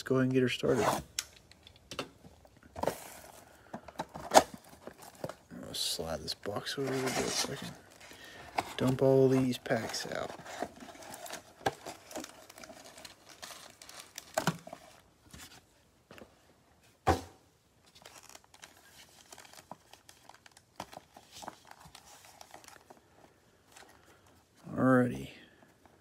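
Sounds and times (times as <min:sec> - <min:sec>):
plastic and foil packs crinkling: 0:02.8 - 0:15.1, 0:17.9 - 0:24.4.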